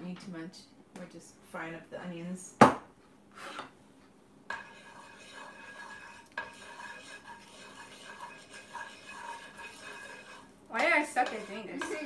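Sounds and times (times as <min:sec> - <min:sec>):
wooden spatula scraping pan: 0:03.4 - 0:03.8, 0:04.5 - 0:12.0
spatula knocking against pan: 0:04.5 - 0:12.0.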